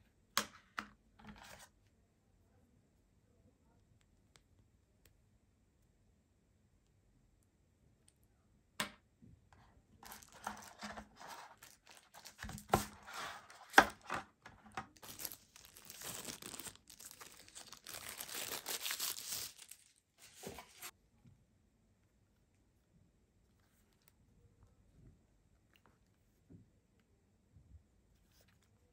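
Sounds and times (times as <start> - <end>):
plastic wrap crinkling: 10.0 - 20.9.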